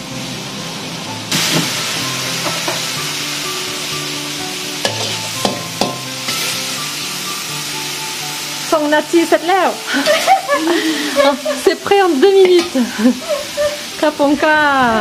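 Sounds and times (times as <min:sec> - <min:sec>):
food sizzling in a wok: 0:00.0 - 0:15.0
metal spatula scraping a wok: 0:04.8 - 0:06.8.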